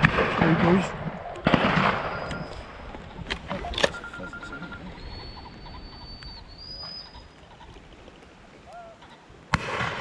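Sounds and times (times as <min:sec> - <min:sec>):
shotgun shots: 0:00.0 - 0:02.5, 0:09.5 - 0:10.0.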